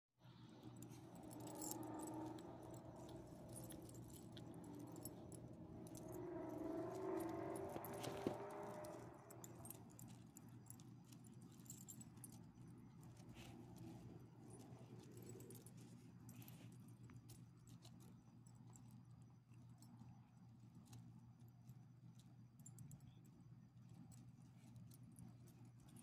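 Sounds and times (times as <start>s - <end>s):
faint low hum: 0.2s - 26.0s
dog tags and leash clips jingling: 0.7s - 16.6s.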